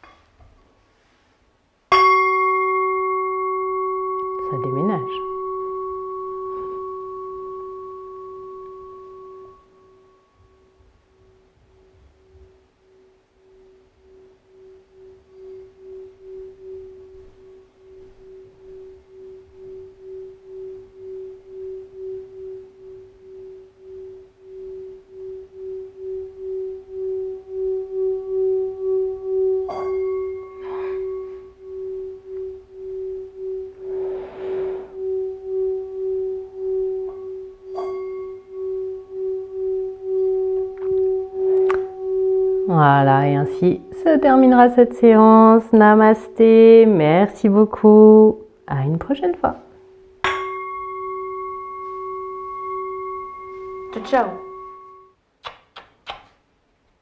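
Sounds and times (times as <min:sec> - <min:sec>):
mallet clinking against bowl: 0:01.9 - 0:09.7, 0:36.6 - 0:44.6, 0:50.2 - 0:55.1
singing bowl rim tone: 0:01.9 - 0:55.2
singing bowl ringing: 0:01.9 - 0:55.2.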